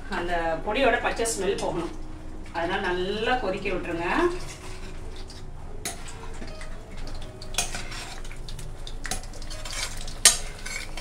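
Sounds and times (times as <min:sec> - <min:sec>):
metal spoon scraping pan: 0:04.1 - 0:11.0.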